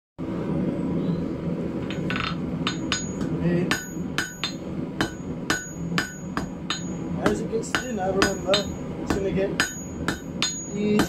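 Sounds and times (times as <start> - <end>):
steady background hum: 0.2 - 11.0
hammer striking steel on anvil: 1.9 - 11.0.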